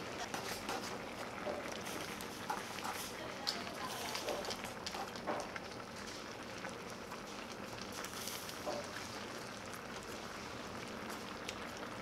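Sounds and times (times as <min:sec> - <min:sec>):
stew simmering hiss: 0:00.0 - 0:12.0.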